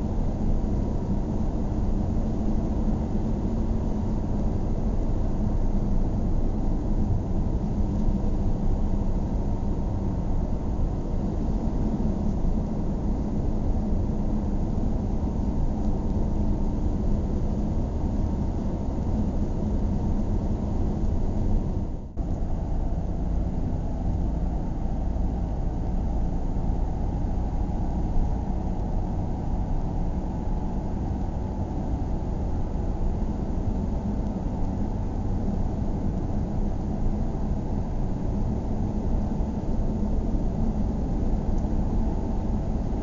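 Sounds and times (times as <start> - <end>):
car engine and tyre rumble: 0.0 - 43.0.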